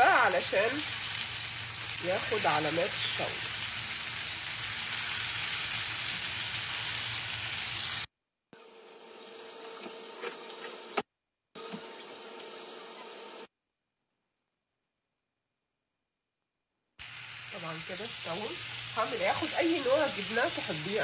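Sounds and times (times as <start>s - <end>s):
chicken sizzling in a pan: 0.0s - 11.0s, 17.0s - 21.0s.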